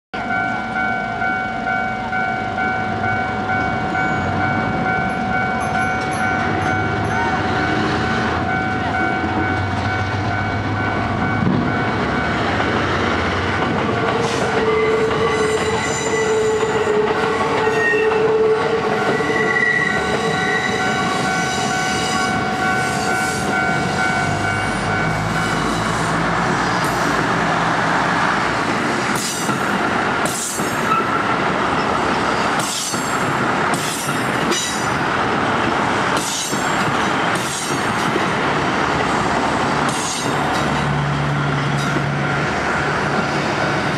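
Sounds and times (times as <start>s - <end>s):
level crossing warning bell: 0.2s - 25.9s, 41.4s - 43.9s
diesel train engine: 0.2s - 43.9s
wheels clacking on rail joints: 3.6s - 43.9s
train horn: 14.1s - 26.2s.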